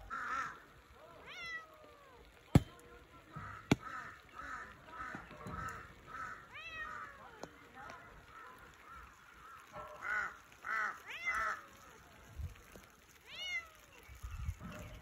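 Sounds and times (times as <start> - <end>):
cat meowing: 1.2 - 2.3, 6.5 - 7.2.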